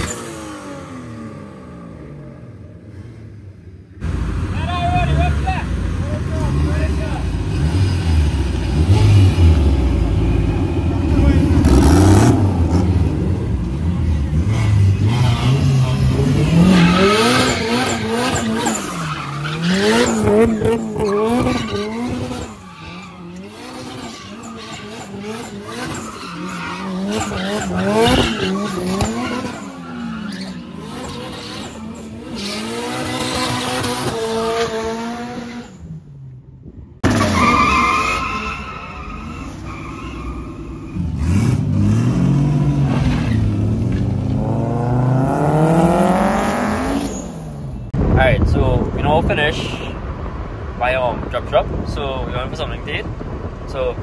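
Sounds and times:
car engine revving hard: 0:11.0 - 0:13.4, 0:14.2 - 0:22.5, 0:23.3 - 0:30.0, 0:30.8 - 0:35.6, 0:41.0 - 0:47.4
tyres squealing: 0:16.3 - 0:33.3.

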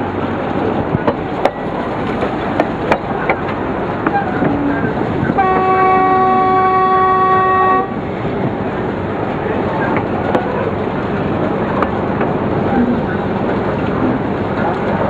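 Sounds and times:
train wheel clicks: 0:00.5 - 0:05.7, 0:09.7 - 0:15.0
diesel locomotive horn blast: 0:04.1 - 0:08.0.

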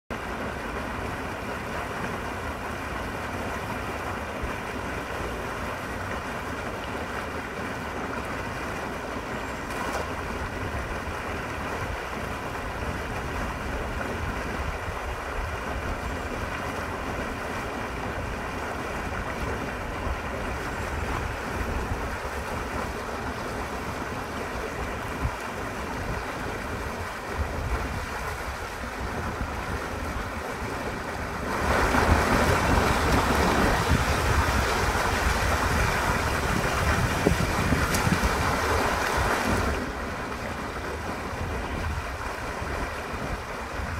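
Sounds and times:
water rushing from culvert: 0:00.1 - 0:43.9.

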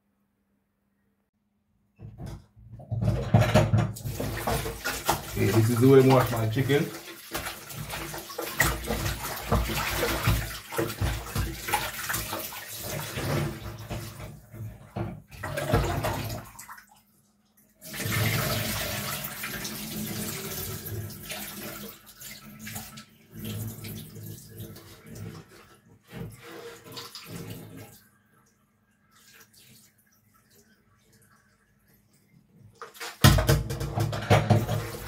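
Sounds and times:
running kitchen tap: 0:03.0 - 0:17.0, 0:17.7 - 0:28.4, 0:29.0 - 0:35.0
water splashing in a steel bowl: 0:03.1 - 0:14.5, 0:15.3 - 0:17.0, 0:17.8 - 0:25.6, 0:32.8 - 0:35.0.

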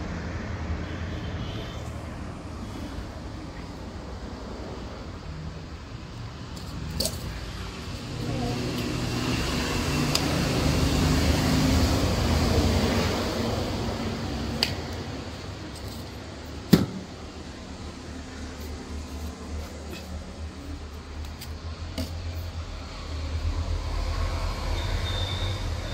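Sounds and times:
vehicle passing by: 0:07.2 - 0:15.7.

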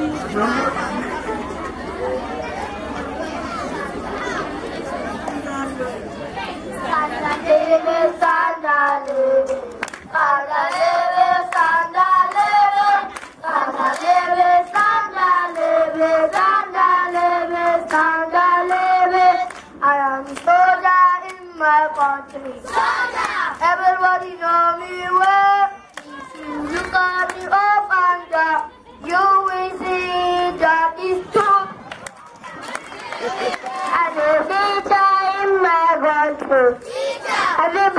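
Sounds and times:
children singing into microphone: 0:06.9 - 0:31.8, 0:33.8 - 0:37.9
hand claps: 0:08.8 - 0:10.1, 0:17.9 - 0:18.9, 0:25.2 - 0:27.5, 0:31.4 - 0:34.0.

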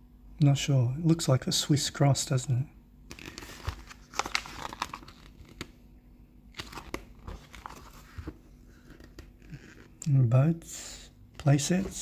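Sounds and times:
paper pages turning: 0:03.1 - 0:05.8, 0:06.5 - 0:09.9.

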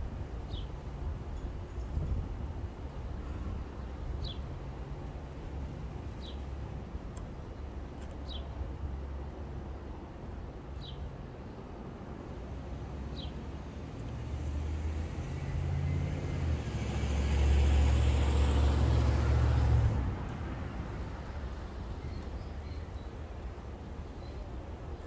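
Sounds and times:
van driving past: 0:14.4 - 0:21.1.

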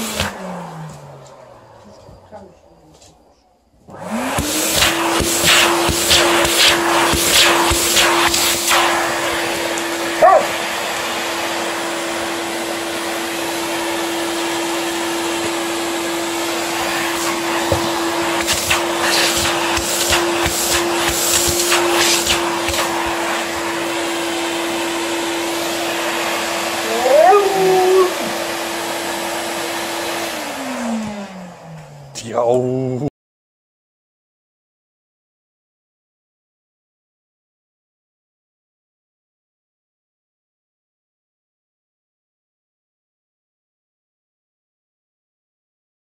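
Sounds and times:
vacuum cleaner running: 0:00.0 - 0:02.8, 0:03.8 - 0:32.7
dog whining: 0:10.1 - 0:10.6, 0:26.7 - 0:28.5
dog vocal call: 0:10.2 - 0:10.6, 0:26.8 - 0:28.4.

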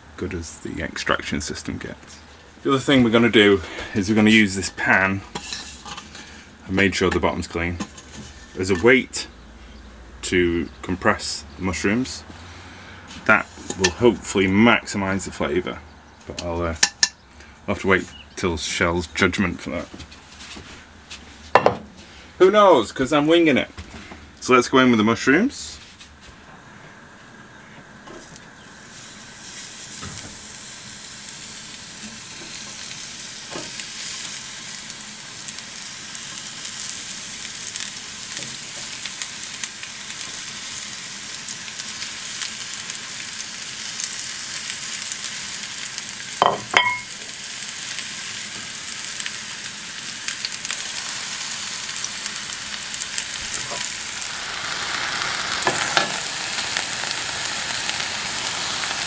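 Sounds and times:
mushrooms sizzling in hot oil: 0:00.1 - 0:15.4, 0:28.2 - 0:59.0
metallic clink: 0:46.5 - 0:47.1.

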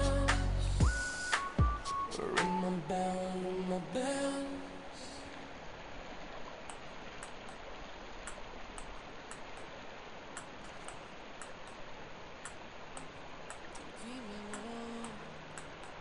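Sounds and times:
river rushing over riffles: 0:00.9 - 0:16.0
faint light ticks: 0:08.2 - 0:09.7, 0:10.3 - 0:11.8, 0:12.4 - 0:16.0.

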